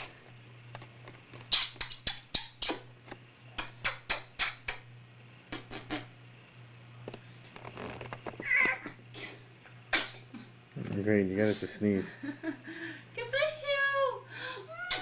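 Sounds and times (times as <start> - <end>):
smacking kisses: 1.4 - 2.9, 3.6 - 4.9, 5.5 - 6.1.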